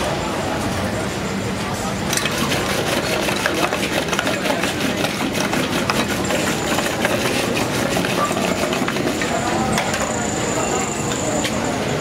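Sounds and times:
wooden stick churning liquid in pot: 2.1s - 10.6s.

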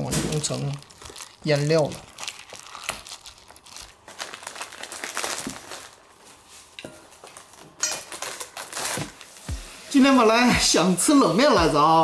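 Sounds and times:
plastic packaging crinkling: 0.0s - 9.4s.

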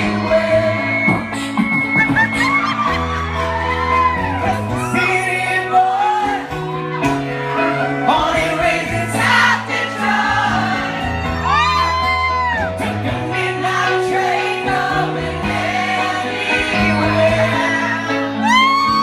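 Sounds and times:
two men singing: 0.0s - 1.7s, 4.8s - 6.8s, 7.4s - 11.2s, 12.6s - 18.8s
guitar: 0.0s - 19.0s
steady bass notes: 0.0s - 19.0s.

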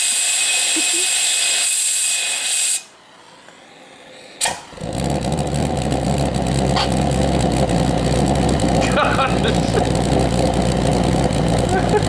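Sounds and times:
compressed air hissing: 0.0s - 3.0s
sharp pop: 4.4s - 4.7s, 6.7s - 7.0s
pulse jet droning and rattling: 4.8s - 12.0s.

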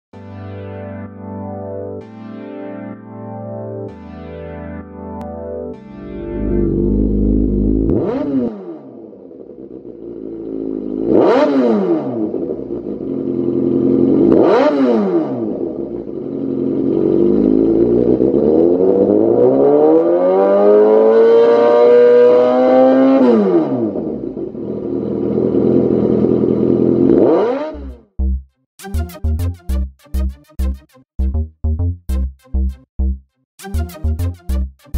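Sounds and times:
motorcycle engine idling and revving: 6.2s - 28.5s.

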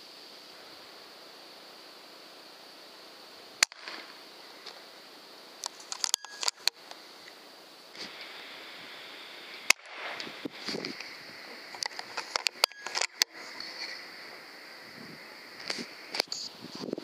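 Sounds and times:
faint hiss: 0.0s - 17.0s
air rifle shot crack: 3.6s - 4.1s, 9.7s - 10.3s
clicks and crackles: 3.6s - 4.9s, 5.6s - 8.4s, 9.5s - 14.1s, 15.5s - 17.0s.

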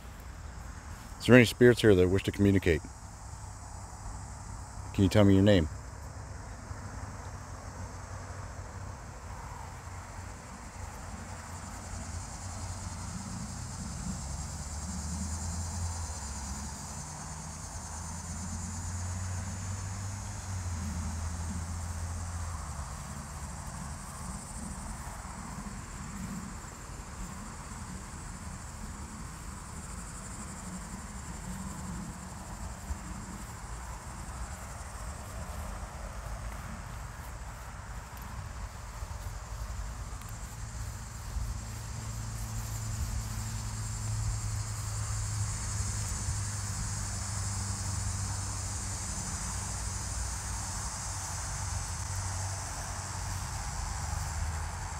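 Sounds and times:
insects chirring: 0.0s - 54.9s
low steady rumble: 9.2s - 49.4s.

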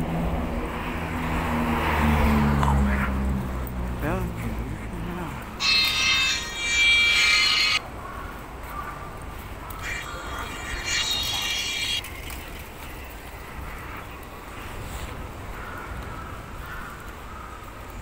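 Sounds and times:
low street rumble: 0.0s - 18.0s
high-pitched squeal: 5.6s - 7.8s, 9.8s - 12.1s.

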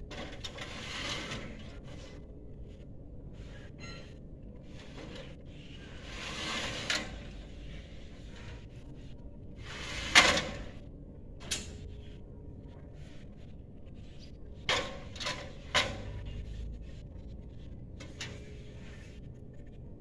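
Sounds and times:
scraping slides: 0.1s - 2.2s, 4.6s - 10.8s.

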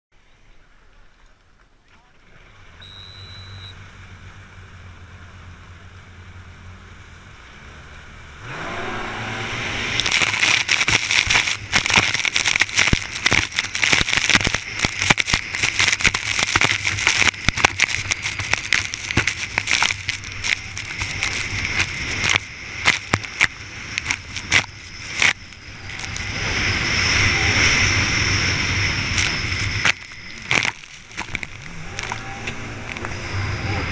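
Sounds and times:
jet ski engine revving: 2.2s - 33.9s
short high beep: 2.8s - 3.8s
water spray slapping hull: 9.9s - 26.7s.

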